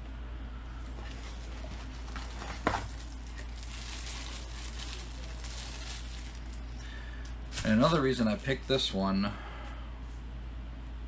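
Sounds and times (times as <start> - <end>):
steady low hum: 0.0 - 11.0
tissue paper rustling: 0.8 - 6.7.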